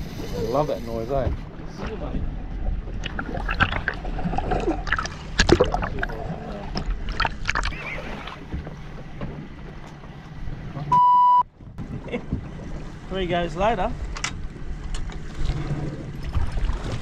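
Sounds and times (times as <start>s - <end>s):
sea wash: 0.0s - 10.9s, 11.8s - 17.0s
water churning at hull: 0.0s - 17.0s
wind: 0.0s - 17.0s
fish splashing at boat hull: 3.0s - 8.6s.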